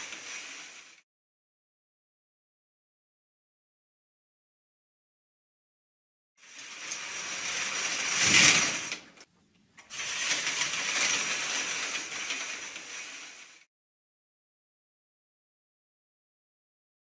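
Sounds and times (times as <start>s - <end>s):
stage curtain drawing: 0.0s - 1.0s, 6.4s - 13.7s.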